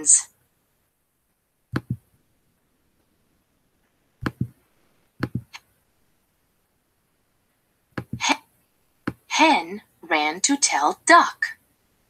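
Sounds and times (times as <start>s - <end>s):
computer mouse clicks: 1.8s - 2.0s, 4.2s - 4.6s.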